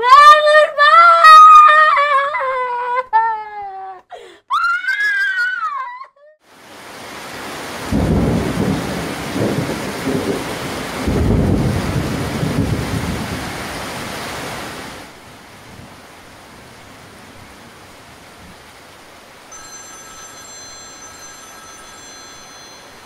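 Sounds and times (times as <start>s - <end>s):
wailing cry: 0.0s - 6.4s
heavy rain: 6.4s - 23.0s
thunder rolling: 7.9s - 13.5s.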